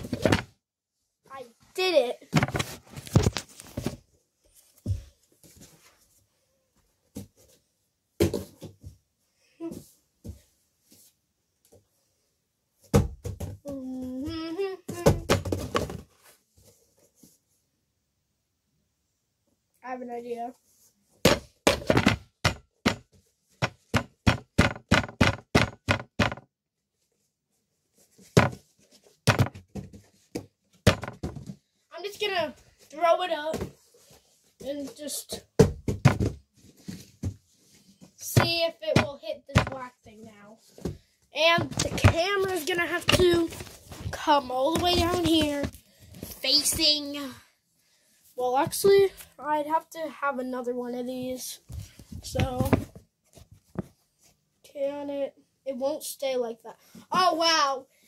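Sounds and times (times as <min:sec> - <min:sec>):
sharp knocks and taps: 0:21.3 - 0:26.5.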